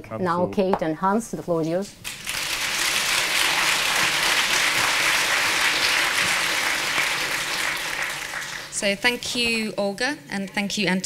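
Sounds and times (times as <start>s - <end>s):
audience applauding: 2.0s - 9.1s.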